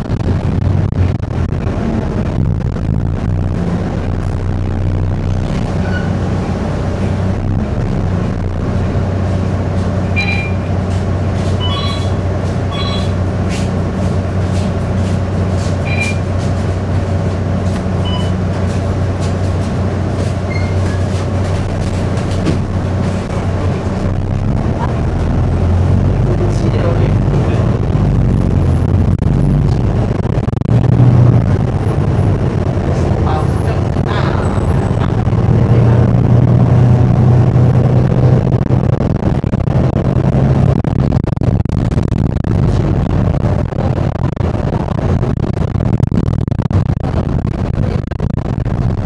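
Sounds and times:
bus engine hum: 0:00.0 - 0:49.0
high squeaks: 0:05.8 - 0:06.2, 0:10.2 - 0:10.8, 0:11.5 - 0:13.2, 0:15.8 - 0:16.3, 0:20.4 - 0:21.2.

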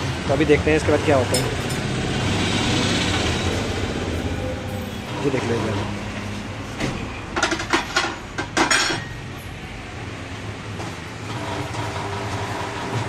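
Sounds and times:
metal clanks and scrapes: 0:01.3 - 0:01.9, 0:06.8 - 0:09.5.

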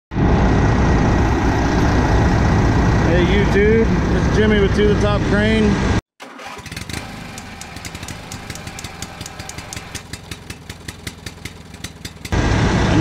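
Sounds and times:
engine running: 0:00.1 - 0:13.0
rapid regular clicks: 0:07.3 - 0:12.4.

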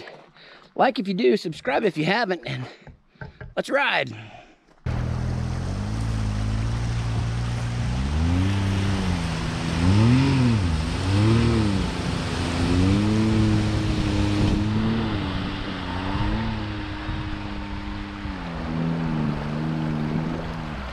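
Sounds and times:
rushing water: 0:00.0 - 0:02.3, 0:04.9 - 0:20.9
engine revving: 0:04.9 - 0:20.9.

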